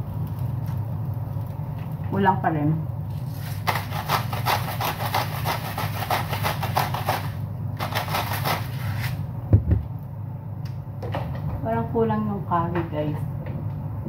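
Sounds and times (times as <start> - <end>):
spice grinder crunching: 3.1 - 9.2.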